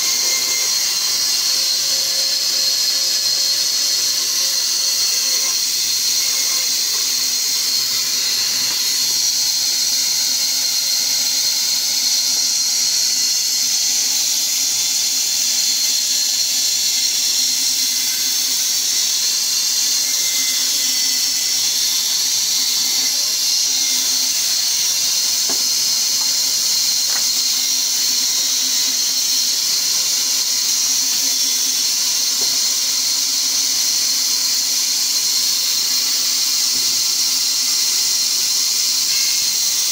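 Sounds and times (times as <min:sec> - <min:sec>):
band saw cutting log: 0:00.0 - 0:11.6, 0:18.8 - 0:32.9.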